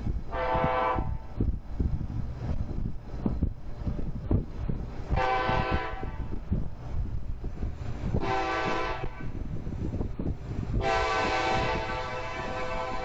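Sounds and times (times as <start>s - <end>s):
low rumbling noise: 0.0s - 13.0s
locomotive air horn blasts: 0.3s - 1.3s, 5.1s - 6.3s, 8.2s - 9.3s, 10.8s - 13.0s.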